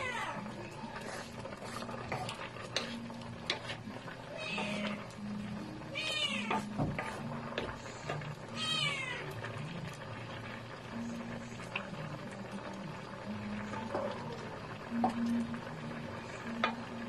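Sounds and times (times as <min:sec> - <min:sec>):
cat meowing: 0:00.0 - 0:00.4, 0:04.3 - 0:05.0, 0:05.9 - 0:06.7, 0:08.5 - 0:09.4
wooden spatula stirring in pan: 0:00.0 - 0:17.0.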